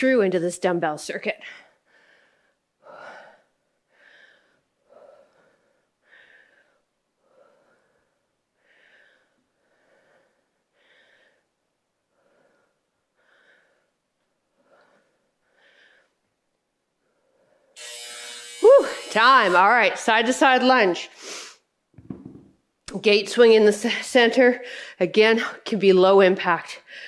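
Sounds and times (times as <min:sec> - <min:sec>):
woman breathing hard: 0:01.4 - 0:16.2.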